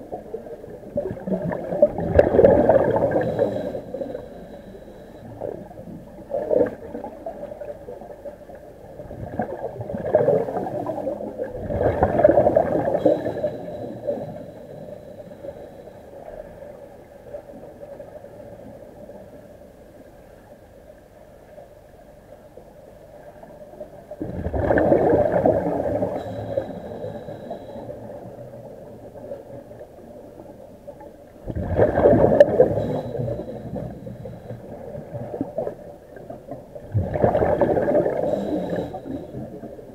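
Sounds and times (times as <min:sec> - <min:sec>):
diver's air bubbles gurgling: 0:00.0 - 0:15.7, 0:24.2 - 0:30.4, 0:31.3 - 0:39.9
faint steady whine: 0:00.0 - 0:39.9.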